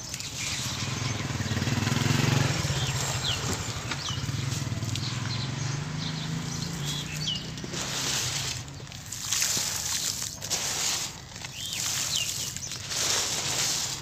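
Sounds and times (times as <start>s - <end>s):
bird chirps: 0.0s - 8.8s, 11.4s - 12.8s
motor engine running: 0.1s - 14.0s
hands squishing wet cement paste: 6.4s - 14.0s.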